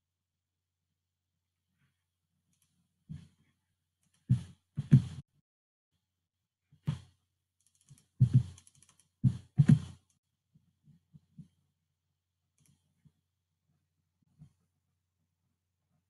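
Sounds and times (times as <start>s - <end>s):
keyboard and mouse clicking: 7.6s - 9.2s.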